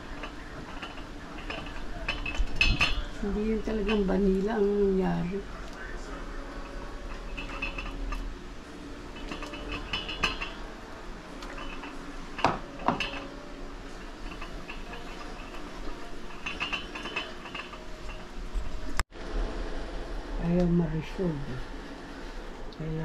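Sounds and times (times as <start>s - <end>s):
metal utensil clinking on pot: 0.0s - 5.6s, 6.4s - 8.3s, 9.1s - 10.7s, 11.4s - 19.0s.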